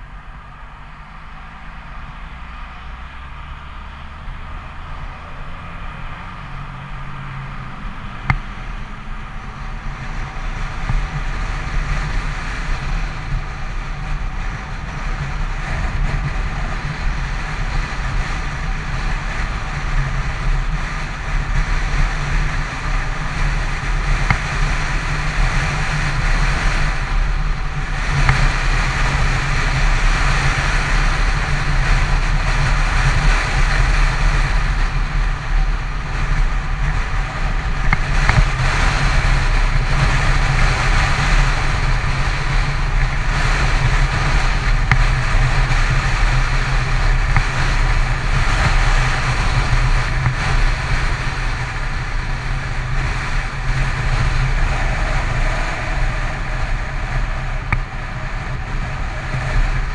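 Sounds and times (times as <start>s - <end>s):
motorcycle engine drone: 0.0s - 59.9s
wind and tyre noise: 0.0s - 59.9s.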